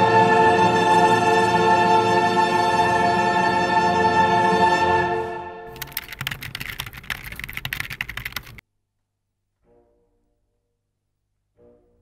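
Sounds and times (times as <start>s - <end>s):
rapid clicking and crackling: 5.7s - 8.6s.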